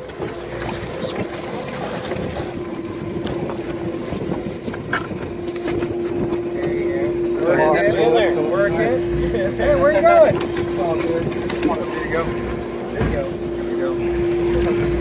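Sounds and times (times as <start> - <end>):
water splashing: 0.0 - 7.4
boat engine humming: 0.0 - 15.0
knocks on boat: 12.9 - 13.4.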